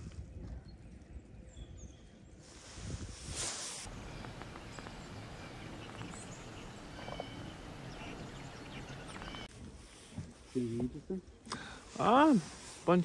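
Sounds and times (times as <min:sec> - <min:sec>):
small birds chirping: 0:03.8 - 0:09.5
low outdoor rumble: 0:03.9 - 0:09.5.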